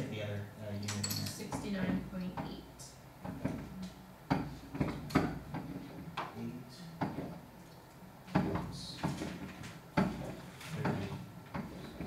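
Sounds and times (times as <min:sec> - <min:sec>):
low room noise: 0:00.0 - 0:12.0
dull knocks and bumps: 0:03.2 - 0:06.3, 0:07.0 - 0:07.4, 0:08.3 - 0:12.0.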